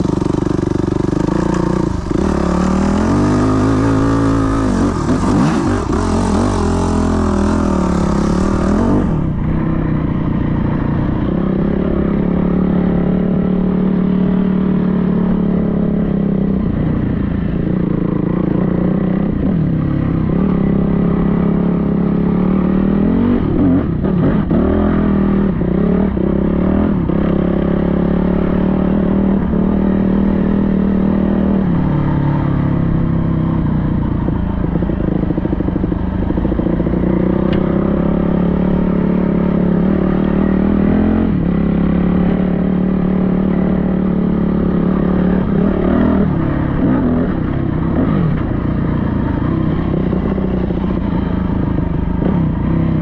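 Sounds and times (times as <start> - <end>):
dirt bike engine revving: 0.0 - 15.8, 34.1 - 53.0.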